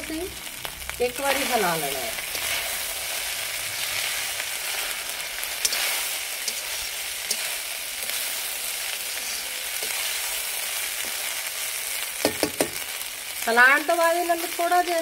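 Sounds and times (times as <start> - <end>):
rice sizzling in hot fat: 0.0 - 15.0.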